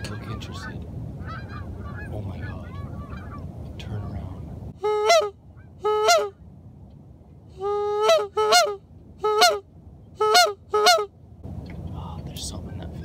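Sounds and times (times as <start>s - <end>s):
goose call honks: 4.8s - 6.4s, 7.6s - 9.6s, 10.2s - 11.1s.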